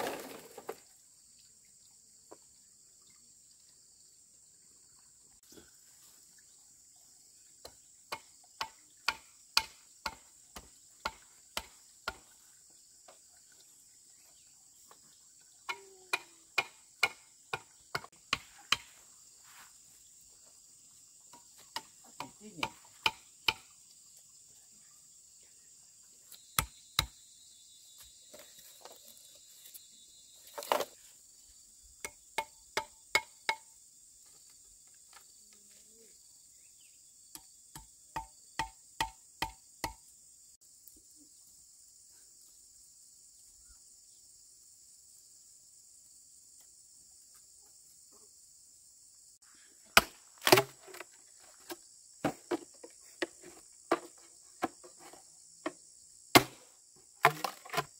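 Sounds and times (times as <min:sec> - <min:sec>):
high insect drone: 0:00.4 - 0:57.9
chopping blows on wood: 0:56.3 - 0:56.6.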